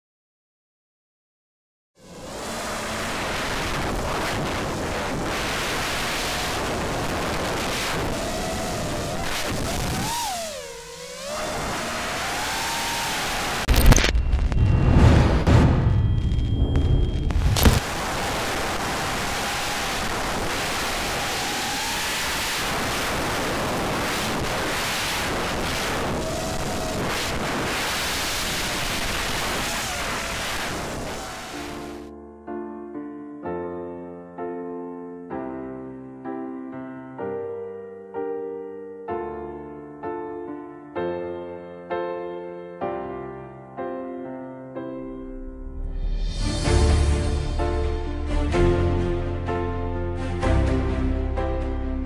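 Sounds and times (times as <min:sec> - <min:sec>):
wind and propeller wash rushing: 0:02.0 - 0:13.9, 0:17.3 - 0:32.1
faint motor whine: 0:02.0 - 0:14.8
thin motor whine: 0:02.0 - 0:15.1, 0:15.8 - 0:32.1.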